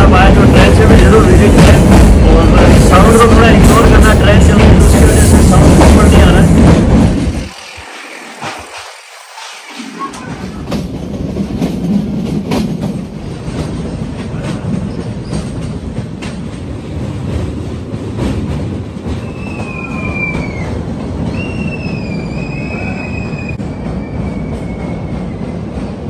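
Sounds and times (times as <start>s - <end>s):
train wheels rumbling on rails: 0.0s - 26.0s
wheels squealing on track: 7.3s - 10.7s, 19.2s - 25.1s.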